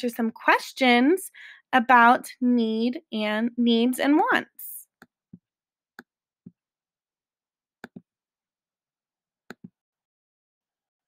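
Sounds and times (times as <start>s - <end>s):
computer mouse clicks: 7.8s - 8.0s.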